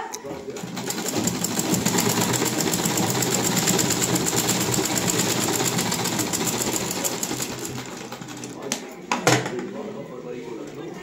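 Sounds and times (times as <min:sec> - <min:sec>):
sewing machine hum: 0:00.2 - 0:08.6
sewing machine needle clattering: 0:00.2 - 0:08.7.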